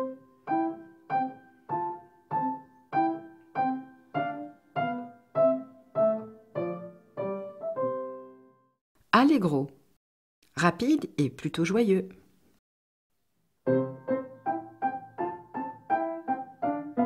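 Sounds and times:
piano playing chords: 0.0s - 8.8s, 13.6s - 17.0s.

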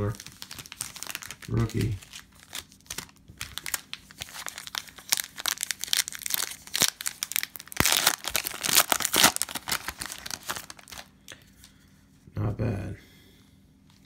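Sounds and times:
foil wrapper crinkling: 0.0s - 11.1s.

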